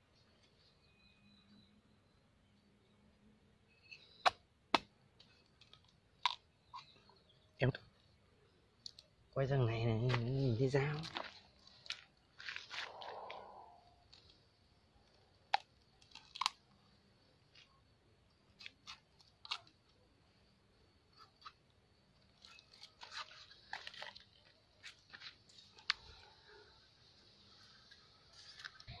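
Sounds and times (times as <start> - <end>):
machete cutting coconut: 4.2 - 4.9.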